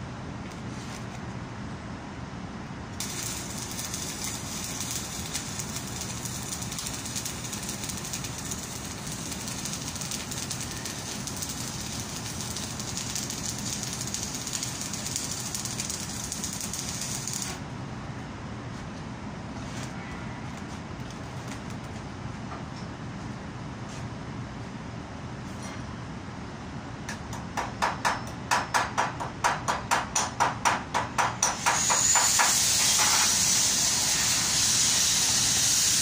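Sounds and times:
welding arc crackling hiss: 0:03.0 - 0:17.6, 0:31.4 - 0:36.0.

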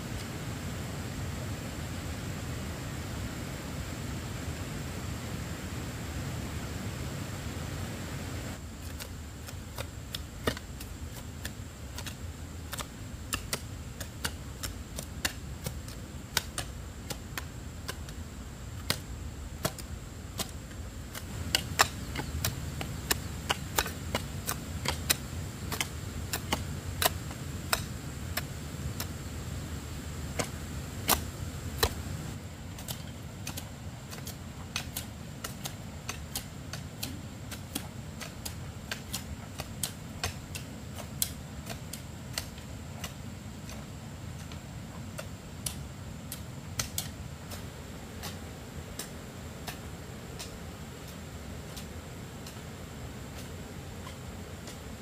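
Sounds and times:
steady low rumble: 0:15.4 - 0:32.5.

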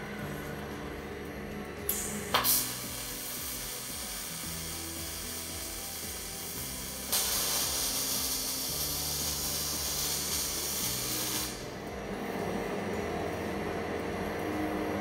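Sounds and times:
welding arc hissing: 0:01.8 - 0:11.8.

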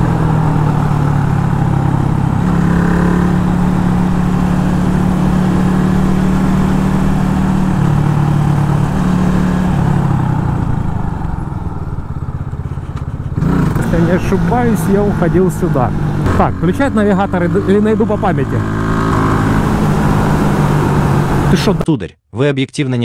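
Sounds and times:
motorcycle engine running: 0:00.0 - 0:21.8.

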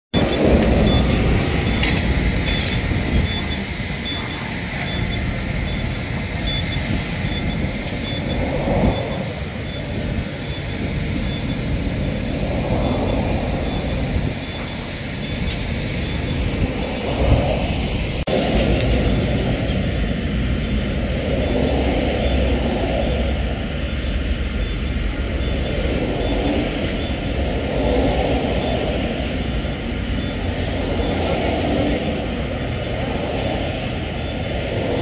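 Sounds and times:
car fire and equipment noise: 0:00.1 - 0:35.0
faint high beeping: 0:00.2 - 0:17.0.

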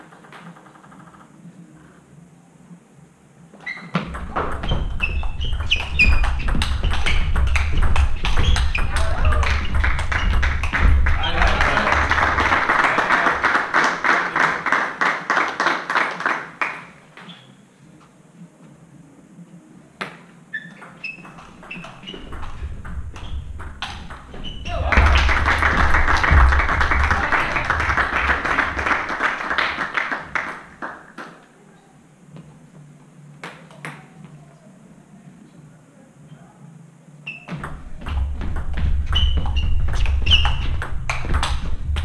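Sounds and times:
table tennis ball bouncing: 0:03.7 - 0:12.5, 0:20.0 - 0:29.2, 0:37.5 - 0:42.0
crowd applauding: 0:08.9 - 0:16.9, 0:24.8 - 0:31.4.

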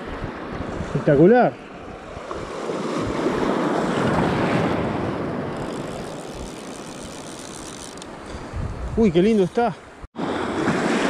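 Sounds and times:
wind on microphone: 0:00.0 - 0:01.2, 0:01.9 - 0:09.7
sea wave washing in: 0:09.6 - 0:11.0.

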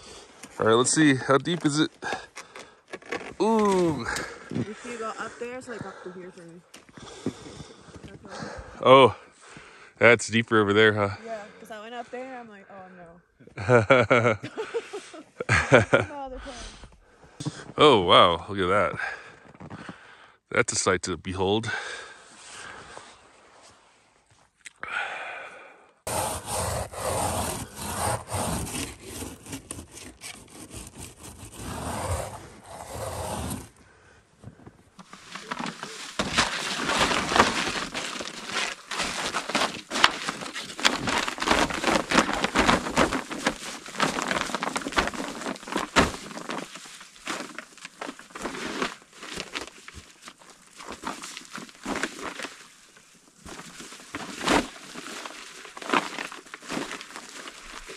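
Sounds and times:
rough rushing crunching noise: 0:26.1 - 0:33.7
emergency blanket crinkling: 0:26.1 - 0:33.8, 0:34.5 - 0:57.9.

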